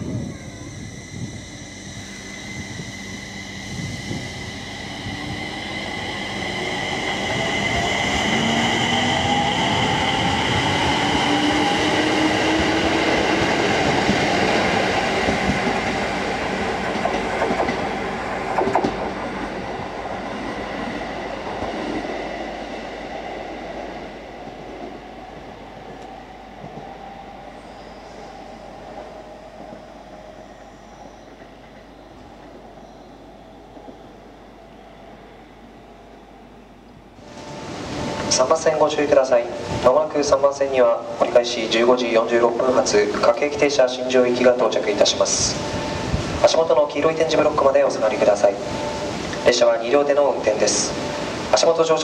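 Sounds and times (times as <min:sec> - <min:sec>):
electric train motor whine: 0:00.5 - 0:17.1.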